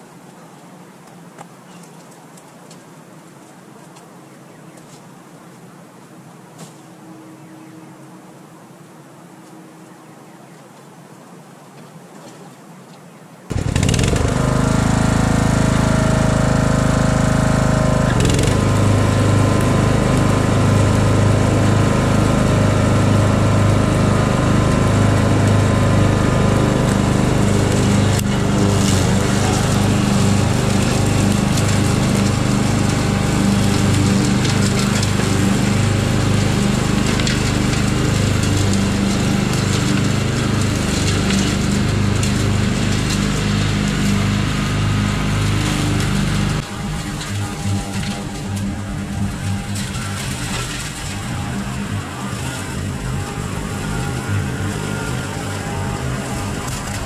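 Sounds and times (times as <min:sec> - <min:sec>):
lawn mower engine running: 0:13.5 - 0:57.0.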